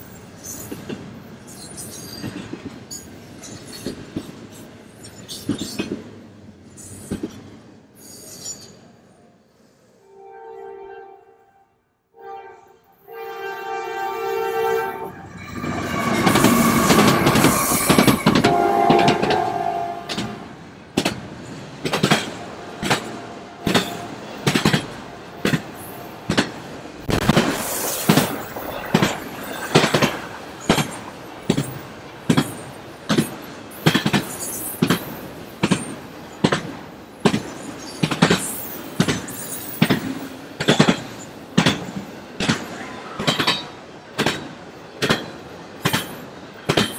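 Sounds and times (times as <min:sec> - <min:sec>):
train horn: 0:10.0 - 0:20.5
locomotives passing loudly: 0:14.0 - 0:20.7
wheels clicking over rail joints: 0:15.6 - 0:46.9.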